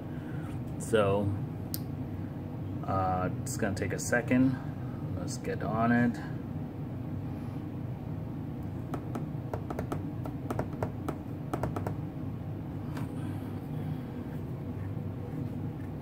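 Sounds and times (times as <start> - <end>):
low hum: 6.2 - 16.0.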